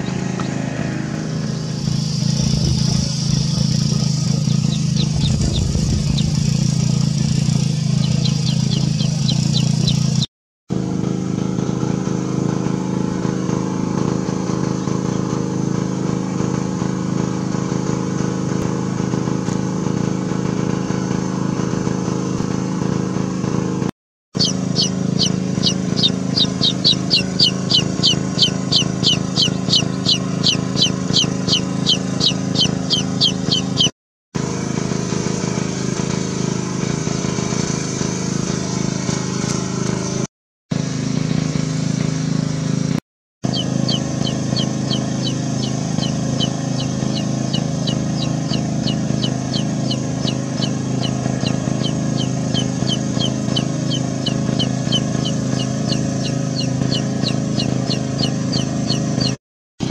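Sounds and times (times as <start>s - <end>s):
steady low hum: 0.0s - 10.3s, 24.4s - 33.9s, 43.4s - 59.9s
chick peeping: 4.2s - 10.3s, 24.4s - 33.9s, 43.5s - 59.9s.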